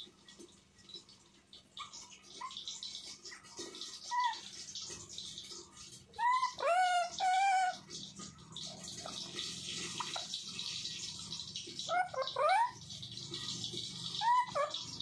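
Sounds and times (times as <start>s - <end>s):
parakeet loud rising calls: 6.2s - 7.8s, 11.9s - 12.8s, 14.1s - 15.0s.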